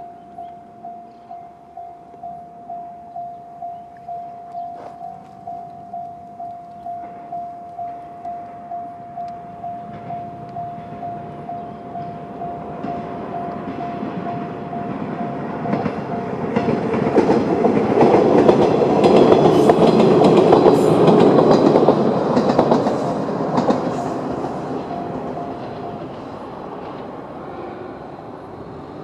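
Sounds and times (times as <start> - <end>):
level-crossing bell ringing: 0.0 - 17.3, 24.1 - 26.5
train wheels clattering over rail joints: 9.8 - 27.4.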